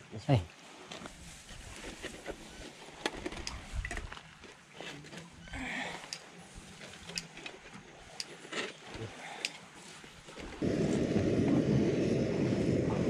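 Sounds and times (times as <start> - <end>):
camp stove clicks and metal handling: 6.0 - 6.3, 7.0 - 7.6, 8.2 - 8.8, 9.4 - 9.6.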